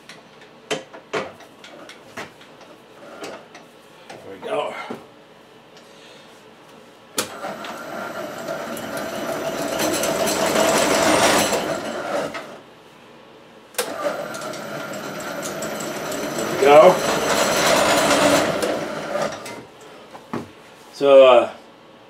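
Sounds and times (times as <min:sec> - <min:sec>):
metal lathe running: 0:07.3 - 0:12.6, 0:13.8 - 0:19.6.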